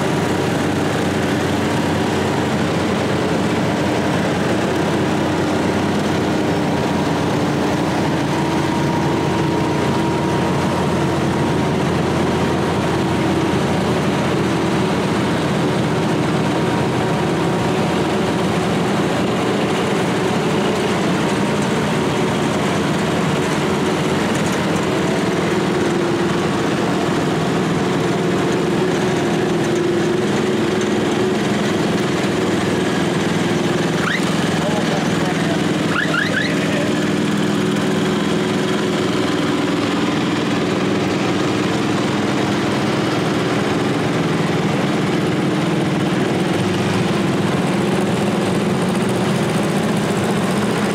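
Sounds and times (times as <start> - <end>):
small tractor engines running: 0.0 - 50.9.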